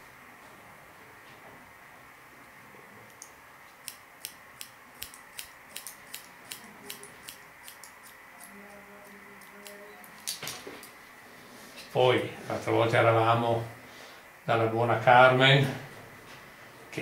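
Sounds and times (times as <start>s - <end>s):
scissors snipping hair: 3.1s - 11.0s.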